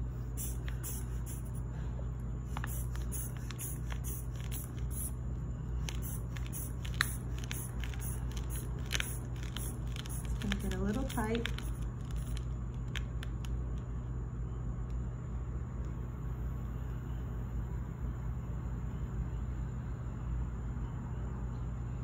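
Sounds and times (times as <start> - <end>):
hand bulb squeezing air hisses: 0.0 - 1.7, 2.4 - 5.2, 5.8 - 12.4
steady low hum: 0.0 - 22.0.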